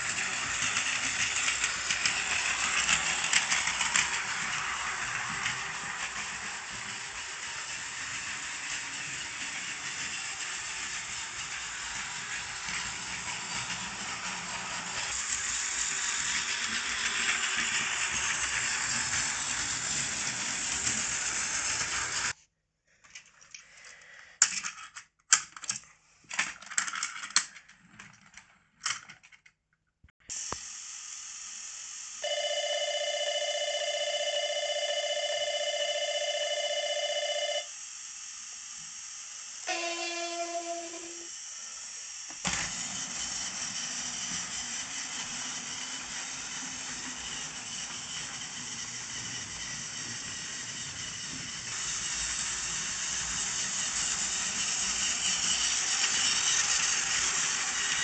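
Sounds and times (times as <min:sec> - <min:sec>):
toy train whirring rattle: 0:00.0 - 0:22.4, 0:23.1 - 0:29.4, 0:32.2 - 0:58.0
electronic bell ringing: 0:32.2 - 0:37.7.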